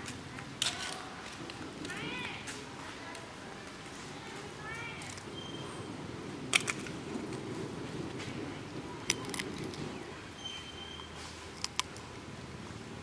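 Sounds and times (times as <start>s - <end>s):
faint whistle-like tone: 5.4s - 5.8s, 10.4s - 11.2s.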